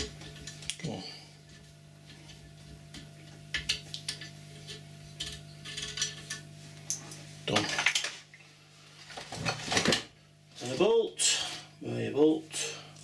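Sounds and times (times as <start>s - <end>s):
steady low hum: 0.0s - 13.0s
metal tools clattering on bench: 5.2s - 8.2s
small metal parts clinking: 5.2s - 8.2s.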